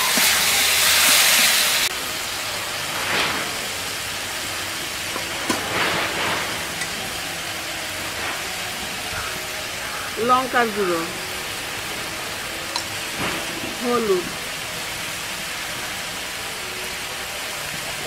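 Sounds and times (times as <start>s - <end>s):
steady hiss: 0.0s - 18.0s
vegetables sizzling in oil: 0.0s - 18.0s
steel utensils clinking: 12.7s - 14.3s.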